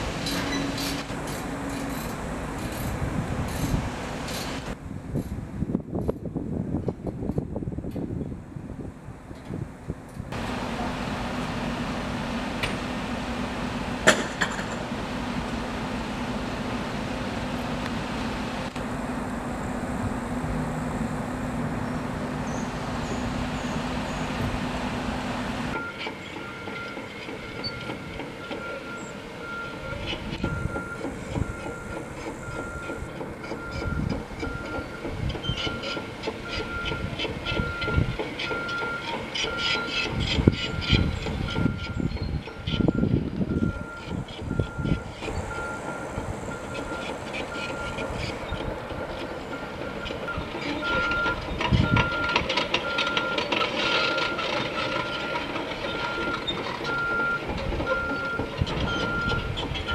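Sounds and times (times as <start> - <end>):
engine droning: 0.0 - 5.6, 10.0 - 59.9
machines clanking and knocking: 13.8 - 15.7, 25.7 - 59.9
reversing alarm beeping: 25.7 - 59.9.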